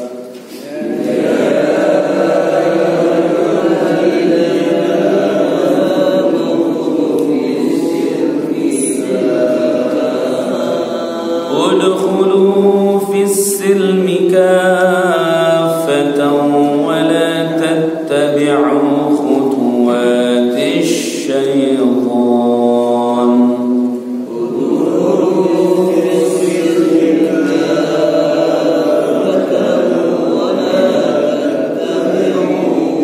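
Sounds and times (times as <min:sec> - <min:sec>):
group of men chanting: 0:00.0 - 0:23.7, 0:24.3 - 0:33.0
man chanting melodically: 0:02.2 - 0:24.0.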